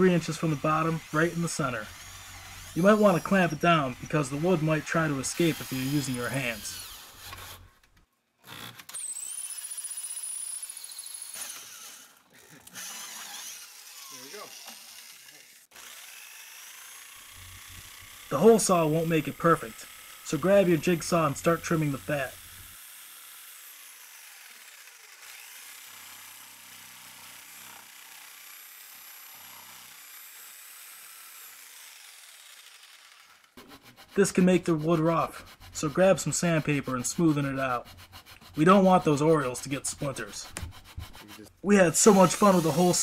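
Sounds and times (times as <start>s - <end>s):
hole saw cutting wood hiss: 0.0s - 7.8s, 8.6s - 26.7s, 27.3s - 43.0s
electric drill whining: 0.0s - 22.8s, 37.3s - 43.0s.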